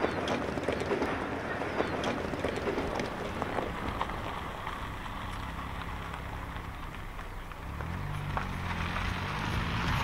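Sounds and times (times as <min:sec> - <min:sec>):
tyres crunching on gravel: 0:01.7 - 0:10.0
car engine hum: 0:02.1 - 0:10.0.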